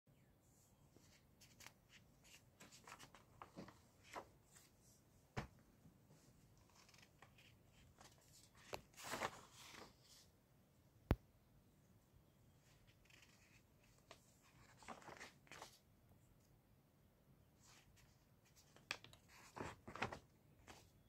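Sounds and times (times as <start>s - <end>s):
paper rustling: 1.0s - 4.7s, 6.7s - 10.2s, 12.8s - 15.8s, 17.6s - 21.0s
page turning: 1.1s - 4.7s, 6.7s - 10.2s, 12.9s - 15.8s, 17.6s - 20.9s.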